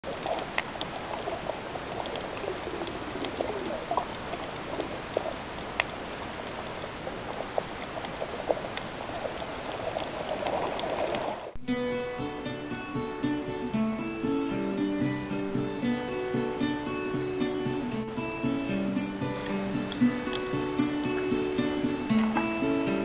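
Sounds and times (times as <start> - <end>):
bubbling gurgles: 0.0 - 11.6, 18.9 - 23.0
small clicks and crackles: 0.1 - 11.6
underwater hiss: 0.1 - 11.6, 15.1 - 23.0.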